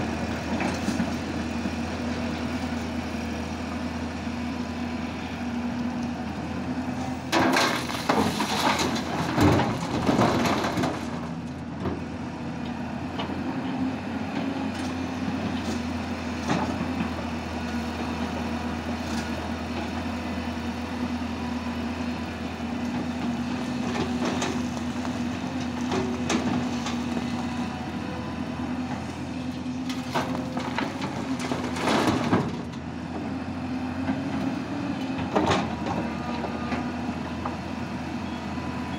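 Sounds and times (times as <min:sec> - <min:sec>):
excavator diesel engine running: 0:00.0 - 0:38.9
bucket scraping and clattering on rock: 0:07.4 - 0:11.3.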